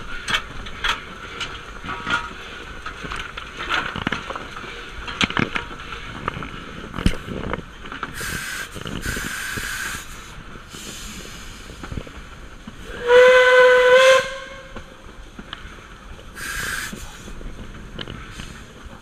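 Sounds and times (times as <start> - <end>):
locomotive clanks and knocks: 0.0 - 8.2
steam hissing: 8.1 - 14.2, 16.3 - 17.5.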